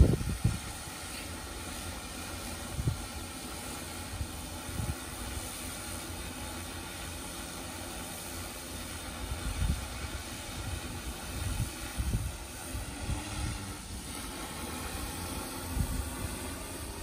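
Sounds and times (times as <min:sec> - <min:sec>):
drone propellers whirring: 0:00.0 - 0:17.0.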